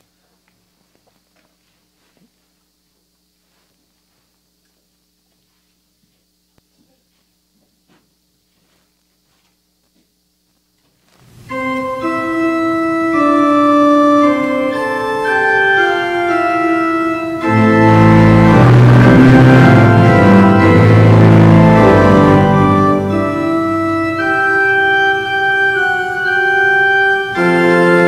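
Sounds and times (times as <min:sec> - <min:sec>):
church organ chords: 0:11.5 - 0:28.0
low bass organ notes: 0:11.5 - 0:28.0.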